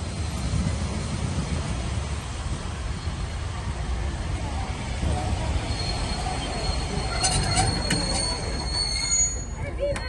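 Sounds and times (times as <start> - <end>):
train carriages rumbling on rails: 0.0 - 10.0
high wheel squeal: 5.5 - 10.0.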